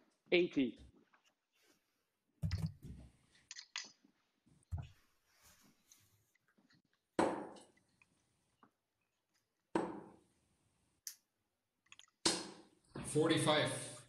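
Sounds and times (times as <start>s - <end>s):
darts thudding into dartboard: 7.2s - 7.7s, 9.7s - 10.2s, 12.3s - 12.7s.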